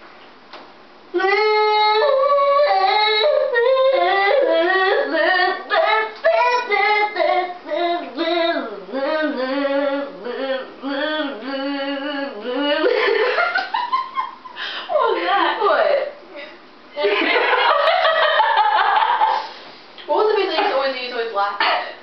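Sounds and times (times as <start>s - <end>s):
woman singing unaccompanied: 1.1s - 13.2s.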